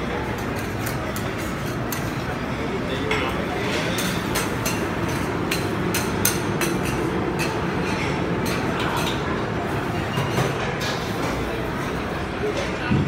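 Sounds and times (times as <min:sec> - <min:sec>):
kitchen din: 0:00.1 - 0:13.0.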